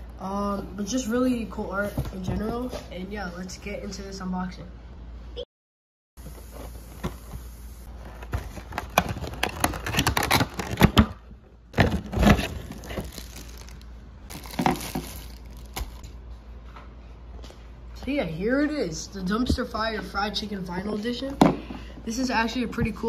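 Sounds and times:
plastic and cardboard crinkling: 7.9 - 16.0.

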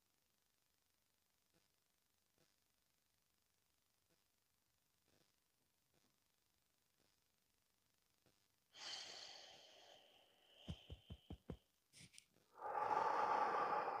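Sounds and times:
person breathing: 8.8 - 14.0
fingertip taps on microphone: 10.7 - 11.6.

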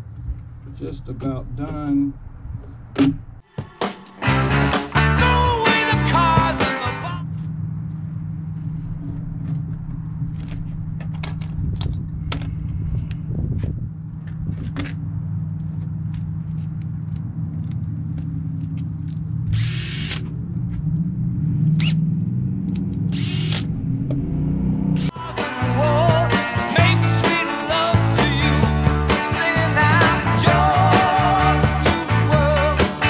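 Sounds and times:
power tool running: 19.5 - 20.2, 23.1 - 23.7.

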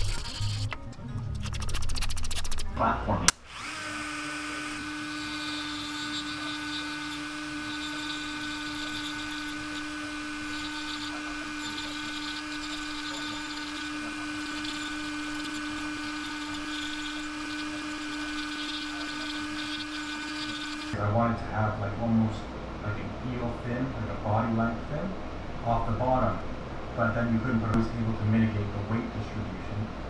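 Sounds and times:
rotary tool grinding wood: 0.0 - 0.8, 3.4 - 21.0.

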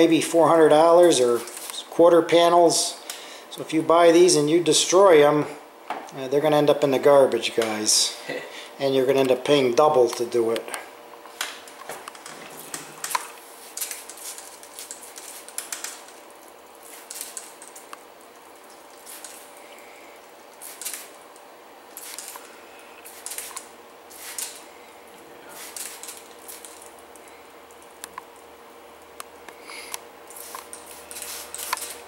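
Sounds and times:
spray bottle squirts hissing: 13.5 - 16.2, 16.8 - 17.8, 19.0 - 19.6, 20.5 - 21.2, 21.9 - 24.6, 25.5 - 26.9, 30.3 - 32.0.

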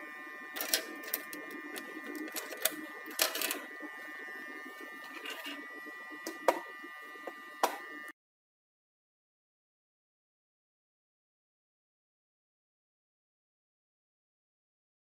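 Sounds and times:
faint high whine: 0.0 - 8.2
plastic clicks and knocks: 6.2 - 7.8.

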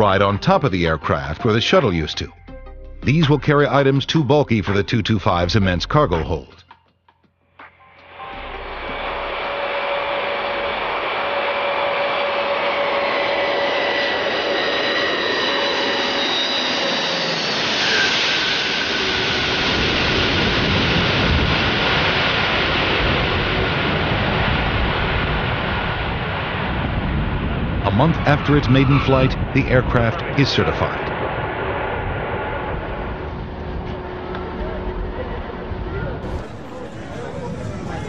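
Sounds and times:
deep engine rumble: 8.1 - 11.2, 36.2 - 38.0
jet engines roaring: 8.5 - 25.7, 36.2 - 38.0
high whining engine tones: 36.2 - 38.0.

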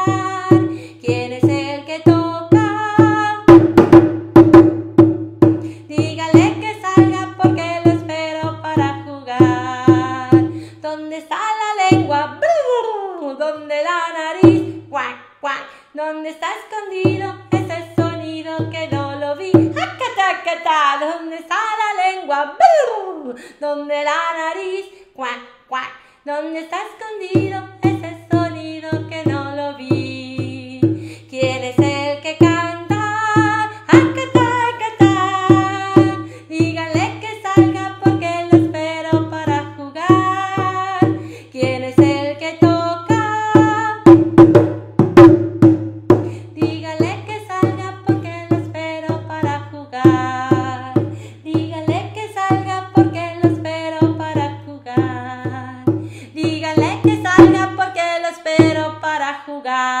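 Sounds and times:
children's song: 0.0 - 3.9, 5.7 - 44.5, 46.3 - 60.0
hand drum beat: 0.0 - 10.6, 11.8 - 12.4, 14.4 - 14.9, 17.0 - 20.2, 27.3 - 58.0, 58.6 - 59.0.

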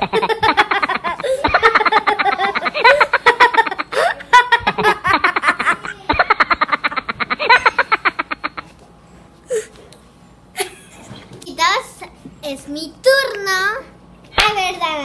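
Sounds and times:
girl laughing: 0.0 - 8.8, 10.6 - 11.2.

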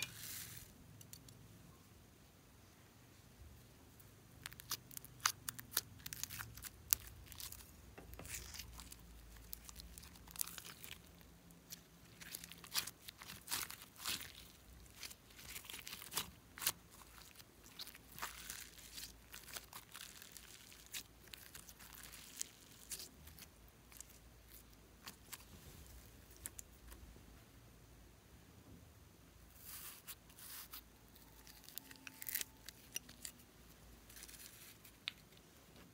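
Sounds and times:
slime crackling and popping: 4.4 - 25.5, 29.6 - 33.3.

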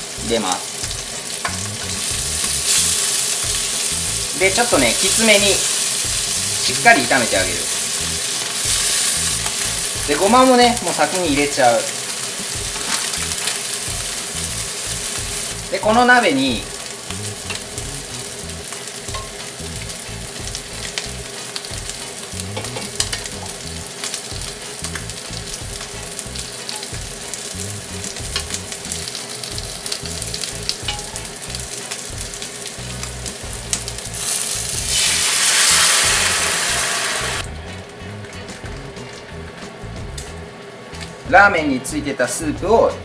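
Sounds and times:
food sizzling in a frying pan: 0.0 - 43.0
water poured into hot pan: 34.2 - 37.4.

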